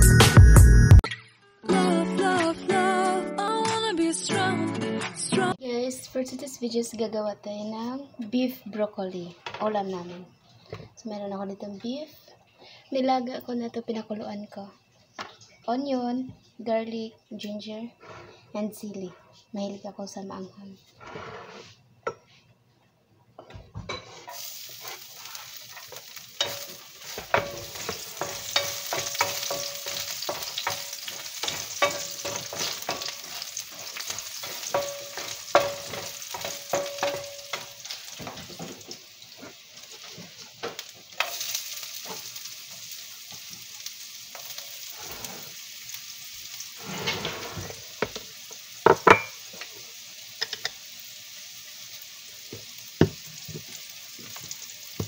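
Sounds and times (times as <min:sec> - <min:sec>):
spatula scraping a pan: 0:20.9 - 0:22.3, 0:23.9 - 0:42.9
food sizzling in oil: 0:23.8 - 0:55.0.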